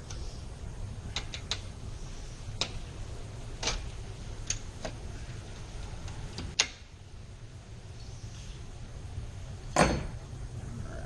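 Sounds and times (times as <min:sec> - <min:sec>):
low steady rumble: 0:00.0 - 0:11.0.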